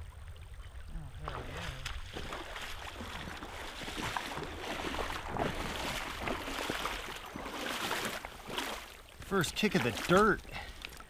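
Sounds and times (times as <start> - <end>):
water sloshing around wading legs: 0.0 - 11.0
stream rushing: 1.1 - 11.0.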